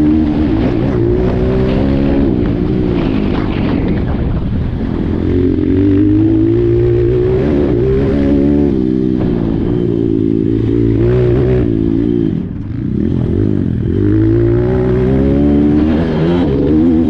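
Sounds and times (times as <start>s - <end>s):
motorbike engine revving: 0.0s - 17.0s.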